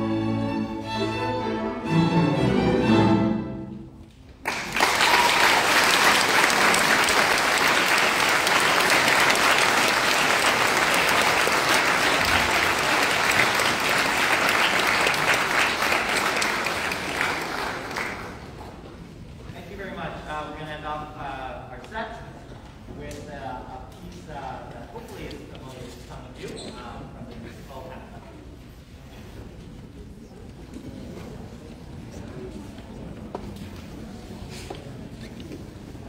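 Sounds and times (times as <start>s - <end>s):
audience applauding: 4.4s - 18.6s.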